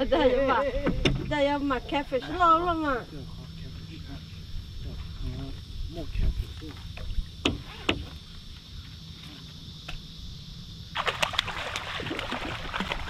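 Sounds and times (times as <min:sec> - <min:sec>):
insects droning: 0:00.0 - 0:13.0
fish splashing in water: 0:11.0 - 0:13.0.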